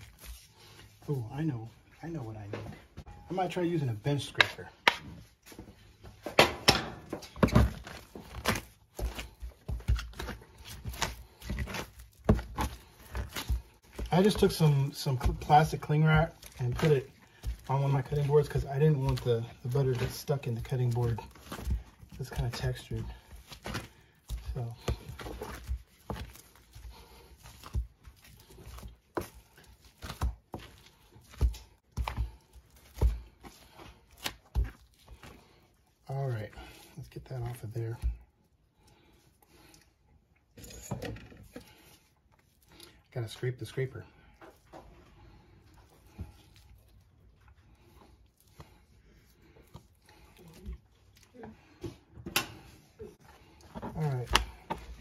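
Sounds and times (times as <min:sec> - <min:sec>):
cling wrap crinkling: 0:07.3 - 0:38.0
scraper scraping butter: 0:07.5 - 0:39.8.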